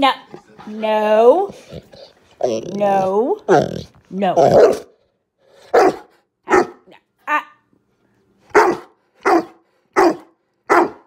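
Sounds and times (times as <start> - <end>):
dog barking: 4.4 - 4.9, 5.7 - 6.9, 8.5 - 11.0
dog yelping: 8.6 - 11.0.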